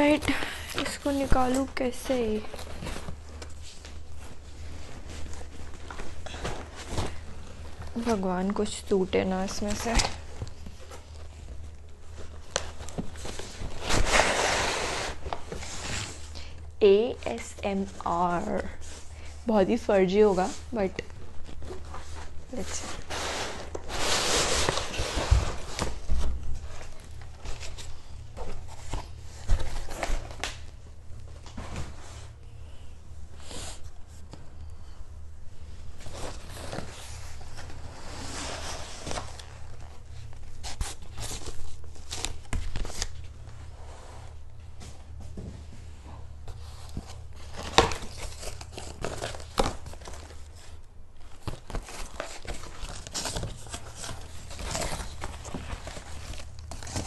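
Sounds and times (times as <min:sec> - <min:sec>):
cardboard flaps rustling: 0:44.8 - 0:57.0.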